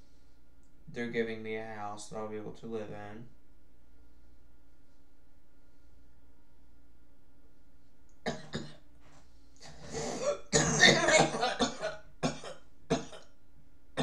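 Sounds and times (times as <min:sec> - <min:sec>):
man coughing: 0:09.6 - 0:13.2
throat clearing: 0:09.6 - 0:13.3.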